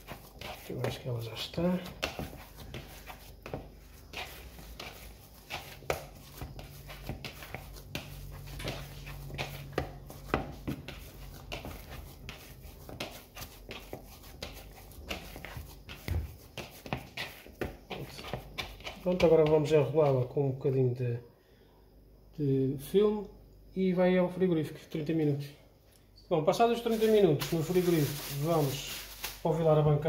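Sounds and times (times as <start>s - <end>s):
dough kneaded by hand: 0.0s - 20.8s, 26.6s - 29.8s.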